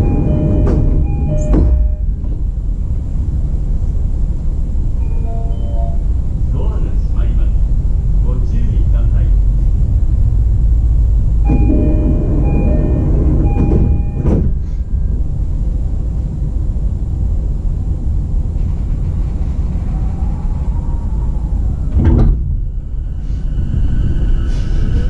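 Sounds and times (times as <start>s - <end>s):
two-tone door chime: 0.0s - 2.3s, 5.0s - 6.1s, 11.5s - 14.5s
train doors shutting with a knock: 0.0s - 2.5s, 11.5s - 15.2s, 21.9s - 22.7s
low steady train rumble: 0.0s - 25.0s
heavy clunk: 13.3s - 14.7s.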